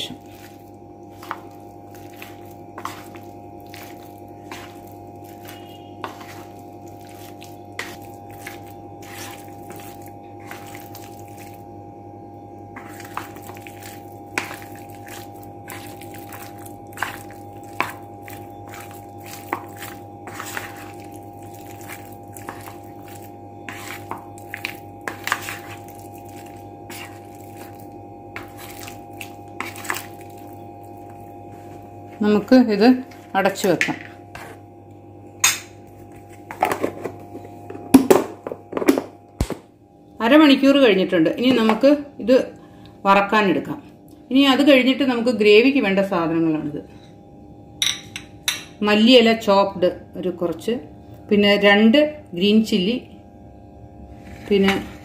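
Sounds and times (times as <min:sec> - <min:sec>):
wet squelching: 0:00.0 - 0:11.6, 0:12.8 - 0:31.8
steady low hum: 0:00.0 - 0:55.0
spoon tapping a bowl: 0:35.4 - 0:35.8.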